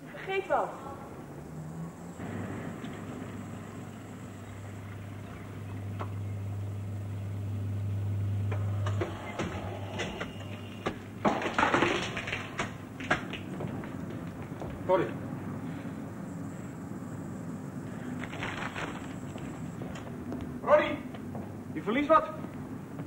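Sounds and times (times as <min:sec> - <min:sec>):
low mechanical hum: 0:00.0 - 0:23.0
clatters and knocks: 0:08.9 - 0:14.9.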